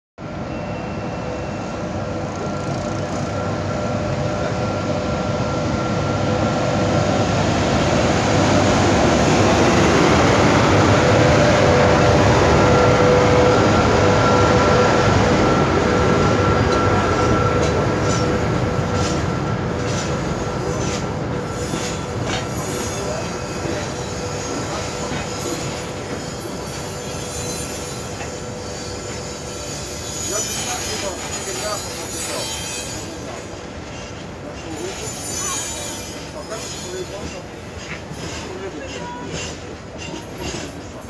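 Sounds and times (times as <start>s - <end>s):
electric locomotive passing: 0.2s - 41.0s
wagons rolling on rails: 29.2s - 41.0s.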